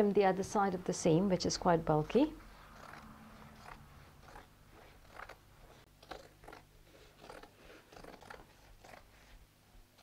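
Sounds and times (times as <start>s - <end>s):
scissors cutting thick fabric: 2.8s - 5.4s.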